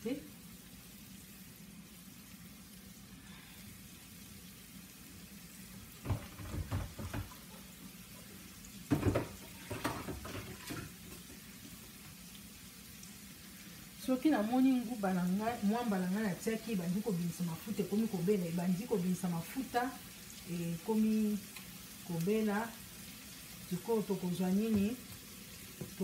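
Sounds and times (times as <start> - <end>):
onions sizzling in a pan: 0.0 - 26.0
knocks and clatters: 6.0 - 7.4.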